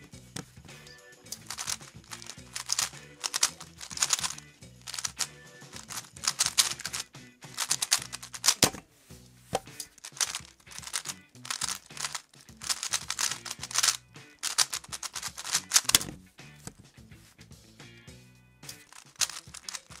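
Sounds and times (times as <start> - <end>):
background music with bass: 0.0 - 20.0
puzzle cube clacking: 1.3 - 16.8, 18.7 - 20.0
cube knocking down on surface: 9.6 - 16.8.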